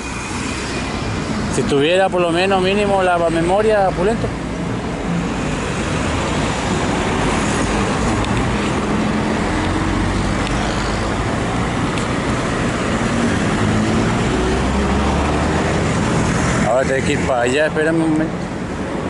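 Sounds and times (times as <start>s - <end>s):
cars passing: 0.0s - 19.0s.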